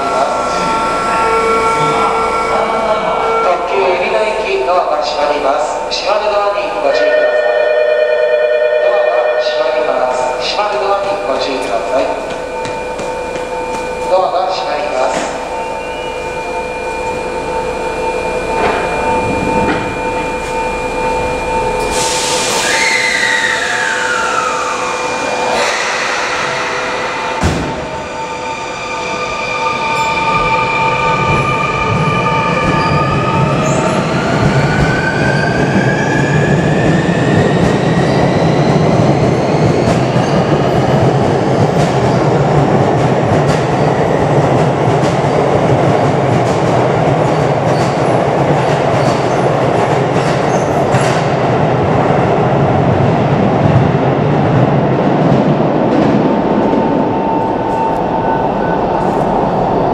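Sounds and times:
train wheels on rails: 11.0s - 14.2s, 31.2s - 59.9s.

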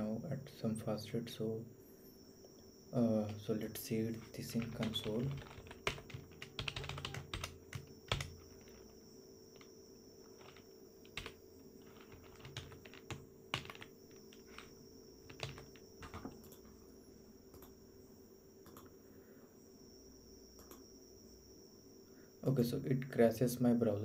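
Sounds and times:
faint steady hum: 0.0s - 24.0s
computer keyboard keystrokes: 4.2s - 9.0s, 10.4s - 16.6s.

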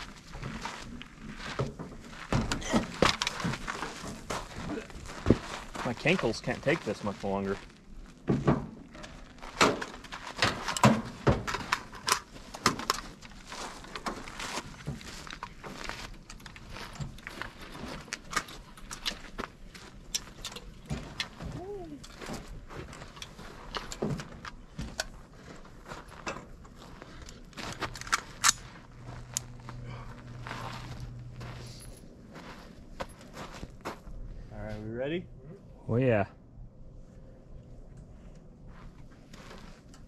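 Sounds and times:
boots and gear clattering on metal: 0.0s - 34.1s
footsteps on gravel: 0.0s - 34.4s, 38.6s - 39.9s.

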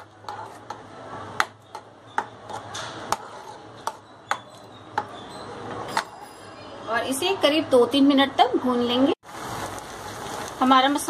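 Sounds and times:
spoon scraping pan: 0.0s - 6.4s.

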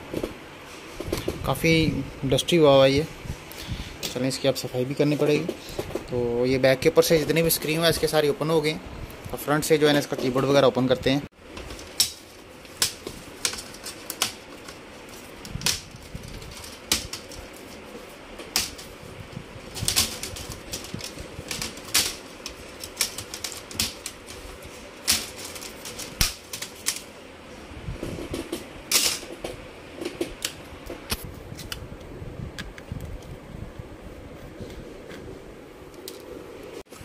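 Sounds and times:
plastic clips snapping: 19.7s - 27.1s.

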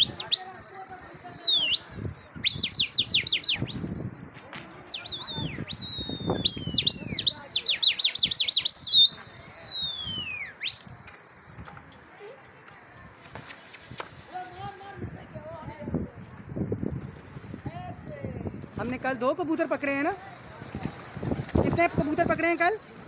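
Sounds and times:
person whistling loudly: 0.0s - 11.7s.

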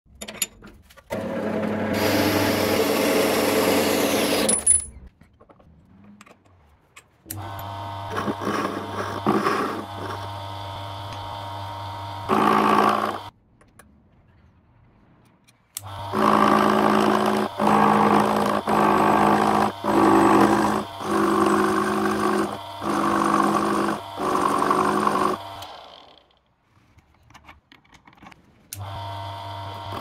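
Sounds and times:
lathe motor running: 1.2s - 4.5s, 7.4s - 13.3s, 15.9s - 26.2s, 28.8s - 30.0s
lathe tool cutting steel: 1.2s - 4.6s, 7.3s - 13.3s, 15.8s - 26.1s
bandsaw cutting steel: 1.2s - 4.7s, 7.3s - 13.3s, 15.8s - 26.4s, 28.8s - 30.0s.

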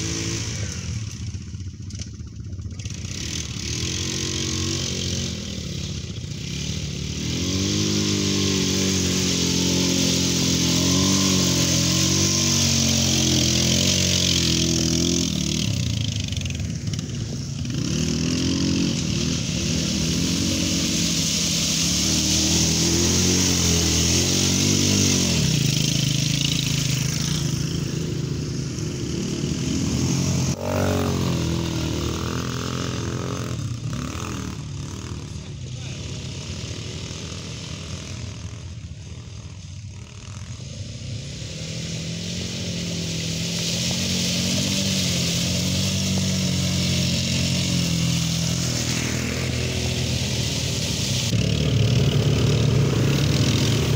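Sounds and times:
atv engines revving: 0.0s - 53.9s.

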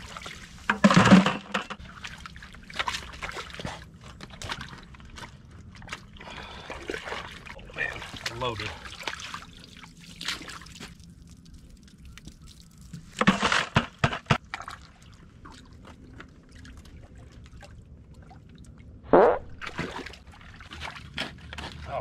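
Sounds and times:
water sloshing and trickling: 0.0s - 22.0s
shovel scooping wet clay: 13.0s - 14.7s, 19.6s - 22.0s
water splash: 19.1s - 21.0s.

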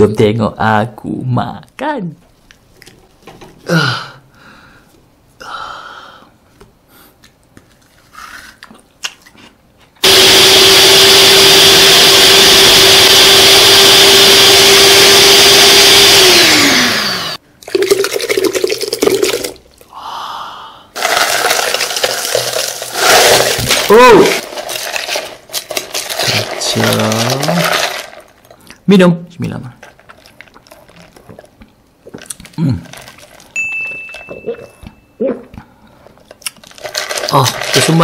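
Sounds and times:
electric blender running: 10.0s - 17.4s.

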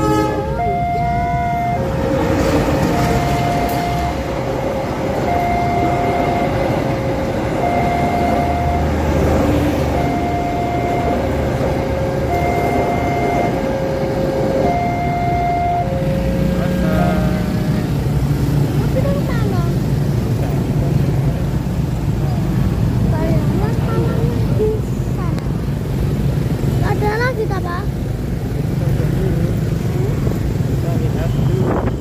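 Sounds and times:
two-tone crossing warning alarm: 0.0s - 18.0s
passing train rumble: 0.0s - 32.0s.

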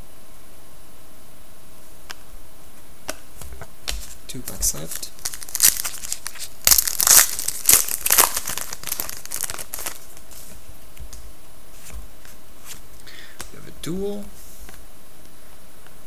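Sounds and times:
cards rustling: 3.1s - 12.8s
foil wrapper crinkling: 3.9s - 11.2s.

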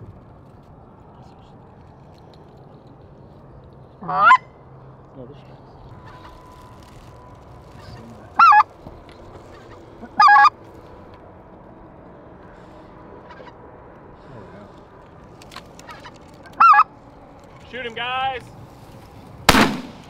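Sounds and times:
goose call bursts: 4.0s - 4.4s, 7.8s - 8.7s, 9.5s - 10.6s, 15.8s - 16.9s.

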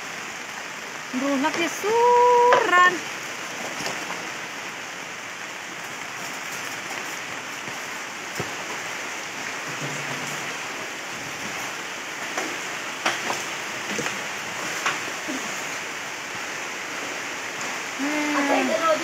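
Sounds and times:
rain falling on water: 0.0s - 19.0s.

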